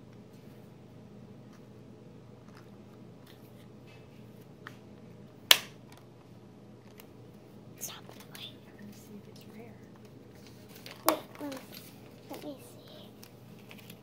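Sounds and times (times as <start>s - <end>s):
sharp plastic snap: 5.5s - 5.8s.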